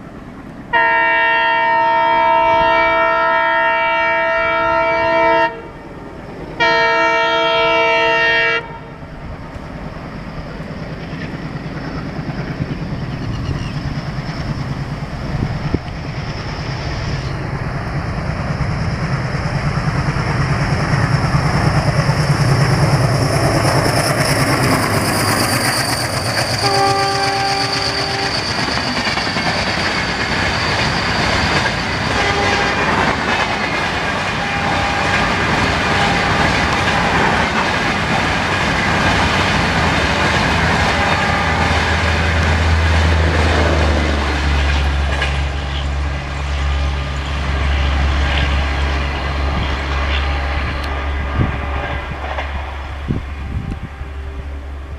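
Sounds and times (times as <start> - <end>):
locomotive whine: 0.0 - 54.9
train coaches rushing and clacking: 0.0 - 54.9
train horn blast: 0.7 - 5.8, 6.6 - 9.0, 26.6 - 28.5, 32.1 - 33.2, 34.3 - 37.4, 40.8 - 42.2, 47.6 - 54.6.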